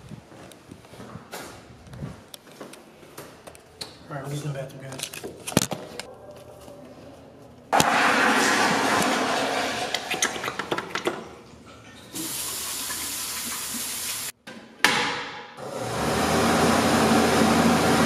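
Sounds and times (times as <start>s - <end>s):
toilet flushing: 7.8s - 11.2s, 12.0s - 14.4s.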